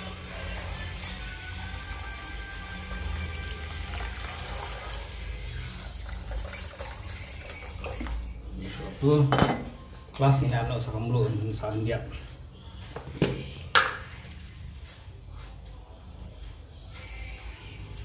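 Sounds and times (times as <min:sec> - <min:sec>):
water pouring into a pot: 0:00.0 - 0:08.4.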